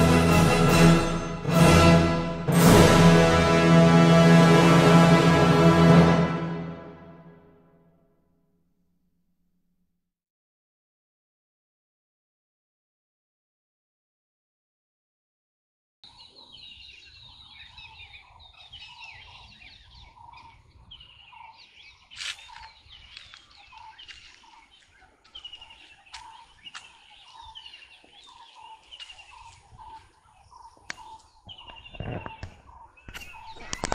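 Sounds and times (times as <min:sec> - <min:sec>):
birds chirping: 0:16.0 - 0:33.9.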